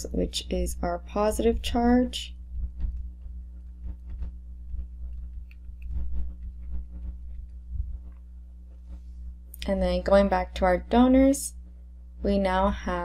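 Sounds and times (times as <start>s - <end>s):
low electrical hum: 0.0s - 13.0s
stylus tapping on drawing tablet: 2.6s - 7.5s.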